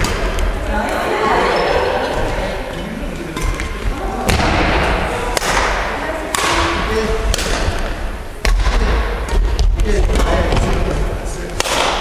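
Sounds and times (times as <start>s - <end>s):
rackets hitting shuttlecock: 0.0s - 0.6s, 3.2s - 10.8s, 11.5s - 12.0s.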